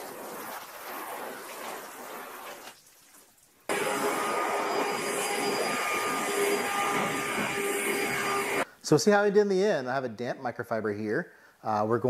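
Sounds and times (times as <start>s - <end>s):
machine noise with high whine: 3.7s - 8.6s
pressure washer spraying: 3.7s - 8.6s.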